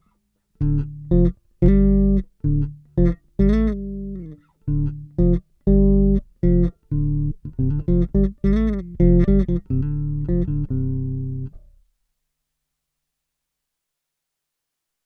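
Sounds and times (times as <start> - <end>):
electric bass riff with octave effect: 0.6 - 11.8.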